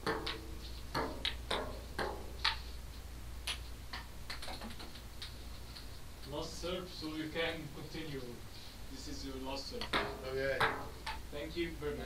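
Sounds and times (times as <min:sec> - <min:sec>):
table tennis ball clicks: 0:03.4 - 0:05.4.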